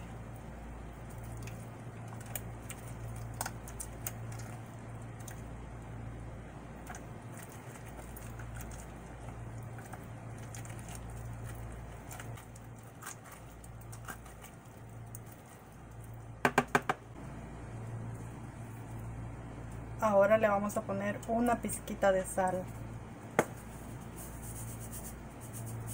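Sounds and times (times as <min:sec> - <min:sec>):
steady low hum: 0:00.0 - 0:25.9
spoon scraping pineapple: 0:06.8 - 0:15.9
loud knocks: 0:16.4 - 0:17.0.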